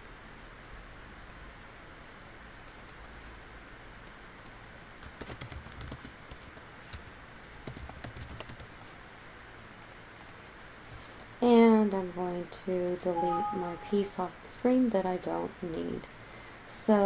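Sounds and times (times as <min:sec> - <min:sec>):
computer keyboard typing: 0:02.6 - 0:03.0, 0:04.4 - 0:08.7.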